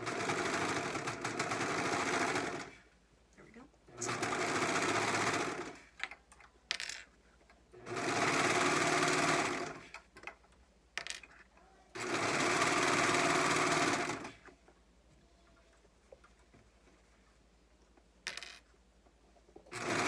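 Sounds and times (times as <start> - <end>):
serger stitching: 0.0 - 2.8, 3.9 - 5.9, 7.8 - 10.0, 12.0 - 14.5, 19.7 - 20.0.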